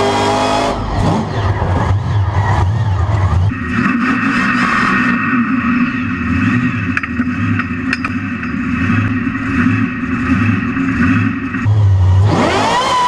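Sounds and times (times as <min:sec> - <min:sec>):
truck engine running: 0:00.0 - 0:13.0.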